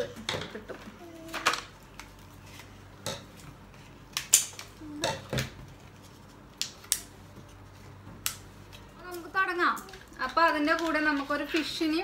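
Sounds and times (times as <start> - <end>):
plastic packets clicking and crinkling: 8.3 - 12.0.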